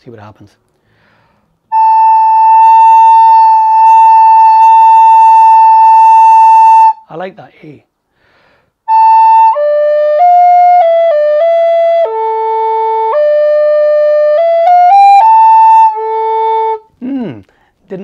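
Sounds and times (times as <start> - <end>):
recorder playing a tune: 1.7 - 7.0, 8.9 - 17.3.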